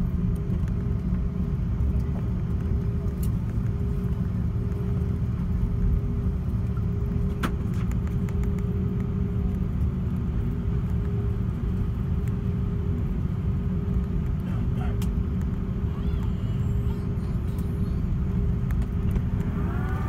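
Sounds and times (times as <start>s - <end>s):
low engine rumble: 0.0s - 20.0s.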